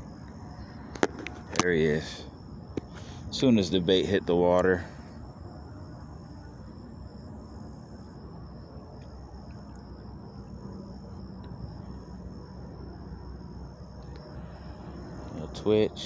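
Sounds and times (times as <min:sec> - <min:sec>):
insects trilling: 0:00.0 - 0:16.0
low background rumble: 0:00.0 - 0:16.0.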